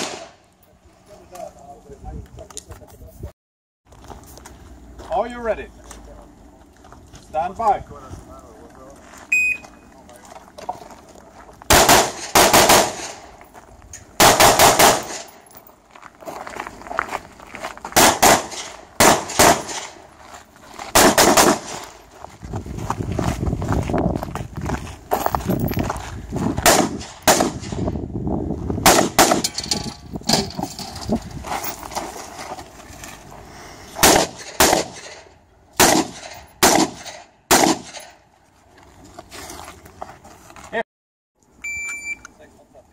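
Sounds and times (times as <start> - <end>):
rifle shots: 0.0 - 0.4, 11.7 - 13.3, 14.2 - 15.4, 18.0 - 20.0, 21.0 - 21.9, 26.6 - 27.8, 28.8 - 29.6, 34.0 - 38.2.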